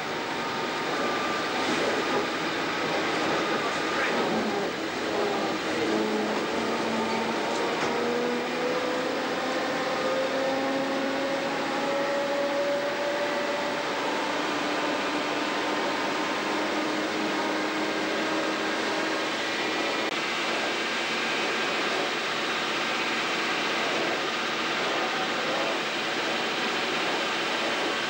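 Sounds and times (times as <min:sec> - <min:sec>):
railcar engine and running noise: 0:00.0 - 0:28.0.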